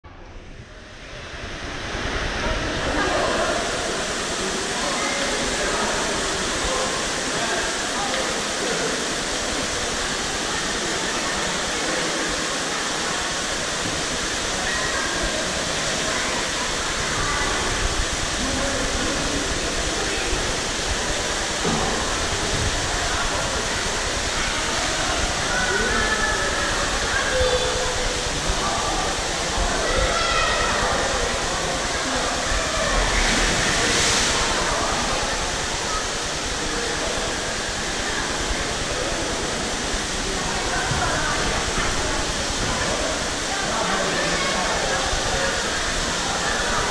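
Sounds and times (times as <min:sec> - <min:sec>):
echoing indistinct voices: 0:00.0 - 0:46.9
water splashing: 0:01.0 - 0:46.9.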